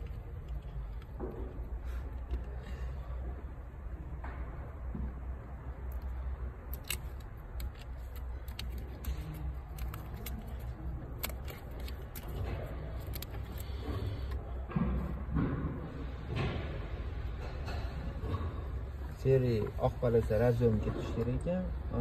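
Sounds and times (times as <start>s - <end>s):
plastic connectors clicking: 6.7s - 12.4s.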